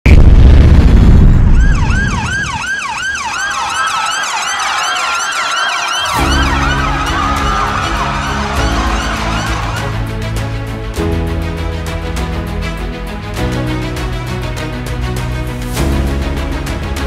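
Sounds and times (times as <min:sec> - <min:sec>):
deep explosion boom: 0:00.0 - 0:02.5
steady ambulance siren: 0:01.5 - 0:10.0
yelping ambulance siren: 0:01.6 - 0:10.0
background music low notes: 0:06.2 - 0:17.0.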